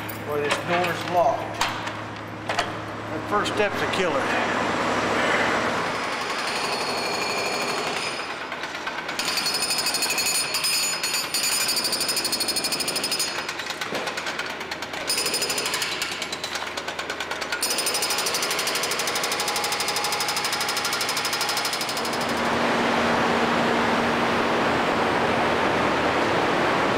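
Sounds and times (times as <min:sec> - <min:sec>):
hydraulic breaker hammering concrete: 0:05.6 - 0:22.6.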